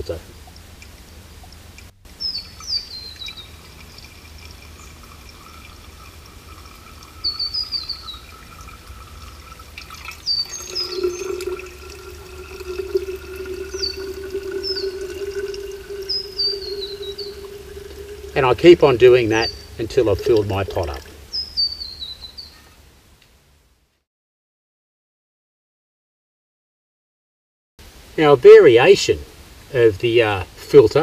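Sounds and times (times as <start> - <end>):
water trickling and dripping: 0.0 - 22.2
bird chirping: 2.2 - 18.5, 19.2 - 22.7
water poured from metal cup: 2.4 - 21.4
steady low hum: 8.2 - 21.4.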